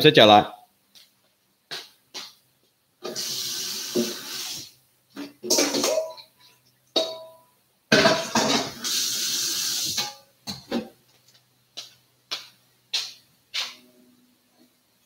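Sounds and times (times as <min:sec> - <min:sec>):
cookware clinks and knocks: 0:05.2 - 0:06.3, 0:07.0 - 0:08.8
pots and utensils clattering: 0:05.2 - 0:09.0, 0:09.8 - 0:10.9.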